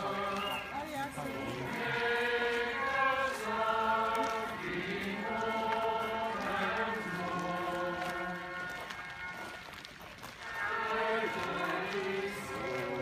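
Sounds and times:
choir and congregation singing hymn: 0.0 - 0.7, 1.4 - 8.7, 10.7 - 13.0.

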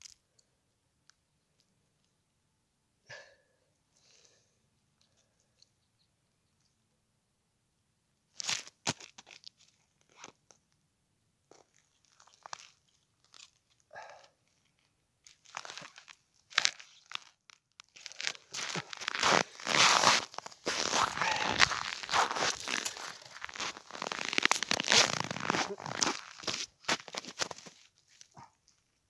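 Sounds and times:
boots crunching on frozen snow: 18.0 - 28.3.

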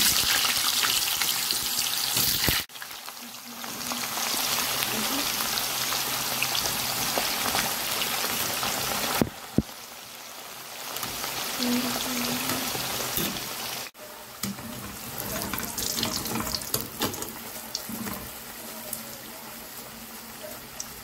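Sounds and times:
food deep-frying in oil: 0.0 - 21.0.

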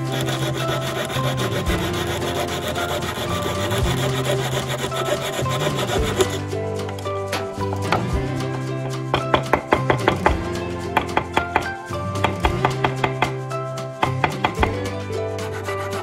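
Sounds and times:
saw cutting through metal: 0.0 - 6.6, 14.0 - 16.0
background music: 0.0 - 16.0.

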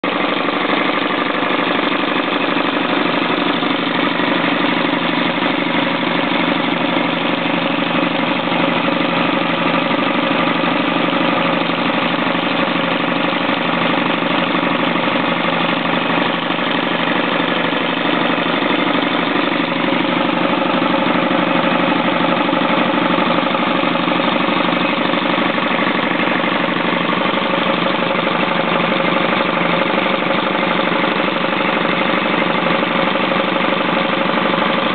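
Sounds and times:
diesel engine running: 0.0 - 34.9.

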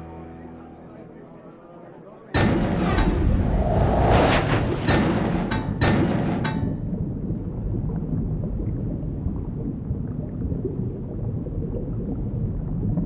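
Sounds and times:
muffled underwater rumble: 6.0 - 13.0
faint bubbling: 6.8 - 13.0.

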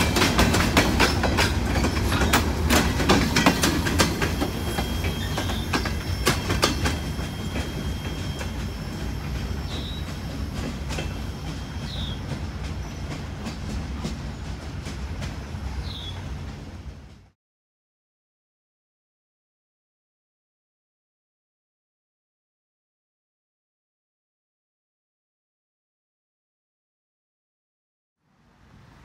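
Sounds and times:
freight train wheels clicking: 0.0 - 17.3.

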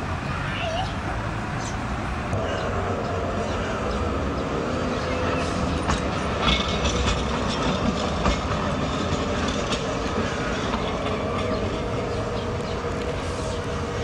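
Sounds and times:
tram rolling on track: 0.0 - 14.0
wheel clicks over rail joints: 5.7 - 11.7.

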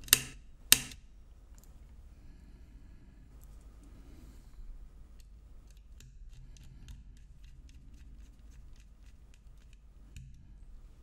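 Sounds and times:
low steady hum: 0.0 - 11.0
clicks and taps of screwdriver: 5.2 - 7.8.

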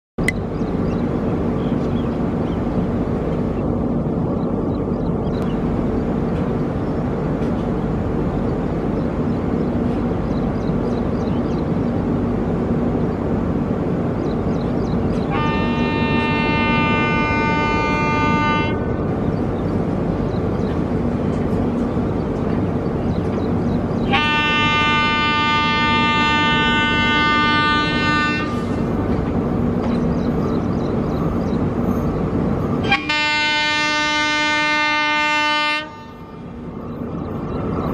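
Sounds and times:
locomotive rumbling: 0.2 - 37.9
train horn blasts: 15.2 - 19.1, 24.0 - 28.8, 32.8 - 36.5.

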